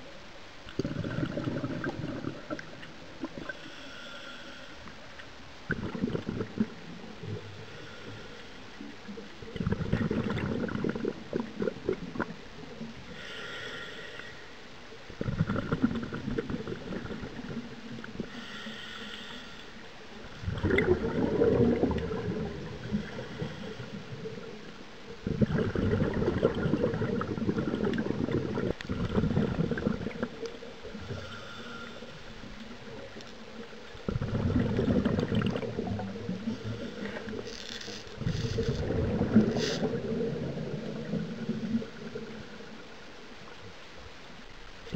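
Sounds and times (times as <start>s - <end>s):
bubbling diver exhalations: 0.7s - 3.6s, 5.7s - 7.9s, 9.5s - 12.4s, 15.2s - 17.6s, 20.4s - 23.9s, 25.2s - 32.2s, 34.0s - 42.5s
hissing regulator inhalations: 18.3s - 19.8s, 31.1s - 32.6s.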